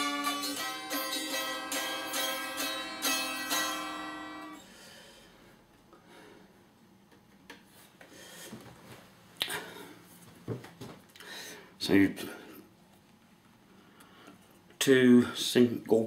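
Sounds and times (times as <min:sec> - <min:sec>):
electric mandolin picked notes: 0:00.0 - 0:04.6.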